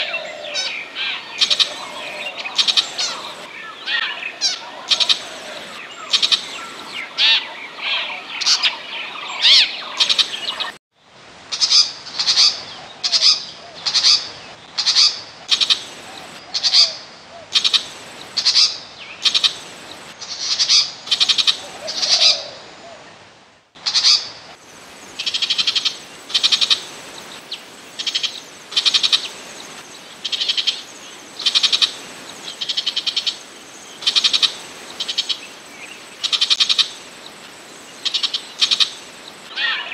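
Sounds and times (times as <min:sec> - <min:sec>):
shrike scratchy calls: 0:00.0 - 0:08.8.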